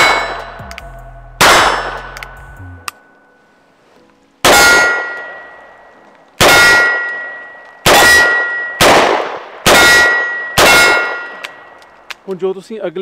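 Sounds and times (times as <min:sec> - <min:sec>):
steel target ringing: 0:00.0 - 0:03.0, 0:04.4 - 0:05.6, 0:06.4 - 0:08.9, 0:09.7 - 0:11.8.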